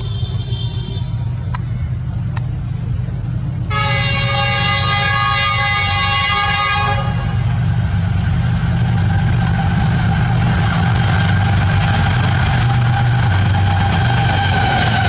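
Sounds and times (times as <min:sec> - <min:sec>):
locomotive engine humming: 0:00.0 - 0:15.0
train wheels rushing on rails: 0:00.0 - 0:15.0
locomotive horn: 0:03.7 - 0:07.6.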